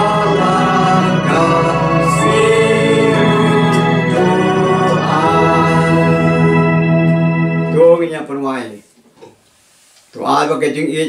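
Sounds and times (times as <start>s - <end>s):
voices singing a hymn: 0.0s - 7.8s
organ chords: 0.0s - 8.5s.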